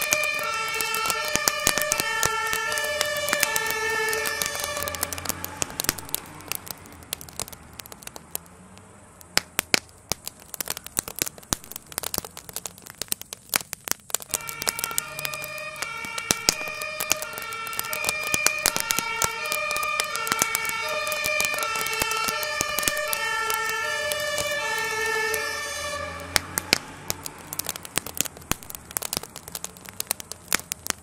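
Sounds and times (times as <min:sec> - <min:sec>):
emergency vehicle siren: 0:00.0 - 0:08.1, 0:14.2 - 0:30.8
fire crackling and popping: 0:00.0 - 0:31.0.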